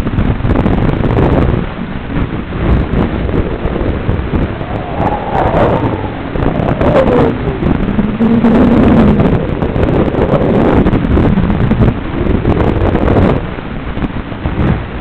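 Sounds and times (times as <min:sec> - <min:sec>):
wind rush on microphone: 0:00.0 - 0:15.0
drone motors whining: 0:03.8 - 0:09.4.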